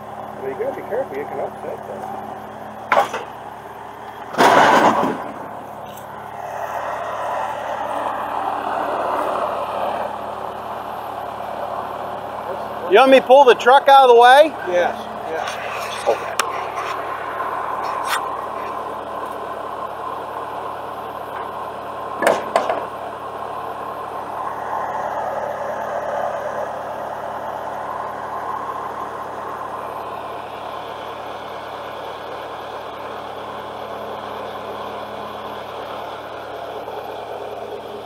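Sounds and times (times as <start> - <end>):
truck engine running: 0.0 - 38.0
sharp knocks: 2.9 - 3.3, 22.2 - 22.9.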